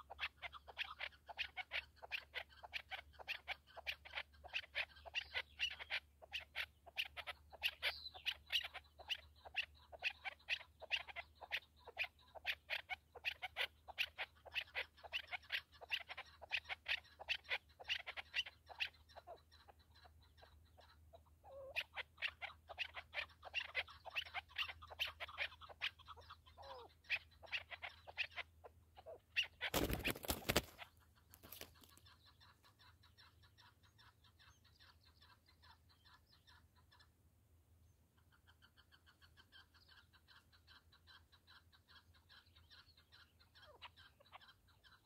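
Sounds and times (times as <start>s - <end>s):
rapid even chattering: 29.4s - 30.8s
partridges clucking: 29.5s - 32.0s.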